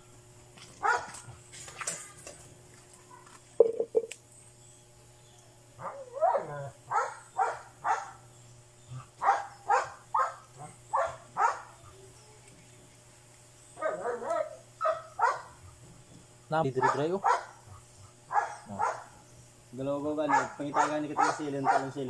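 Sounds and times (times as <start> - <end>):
dog barking: 0.8 - 1.3, 5.8 - 8.2, 9.2 - 11.9, 13.8 - 15.6, 16.8 - 19.2, 20.2 - 22.0.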